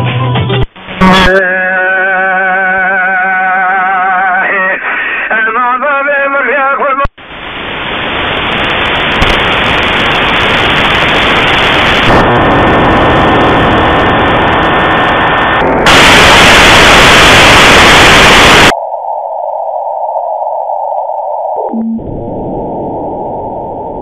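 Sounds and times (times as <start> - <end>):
radio static hiss: 0.6 - 1.4, 4.5 - 5.6, 7.0 - 24.0.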